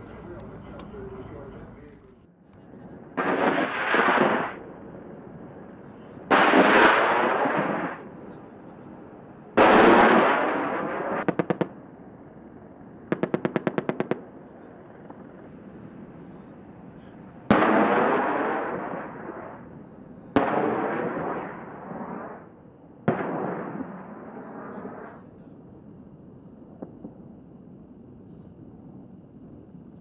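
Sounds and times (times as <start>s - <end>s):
cannon fire bursts: 3.2s - 4.7s, 6.2s - 8.3s, 9.6s - 11.8s, 13.1s - 14.4s, 17.4s - 19.7s, 20.4s - 22.4s, 23.0s - 25.2s.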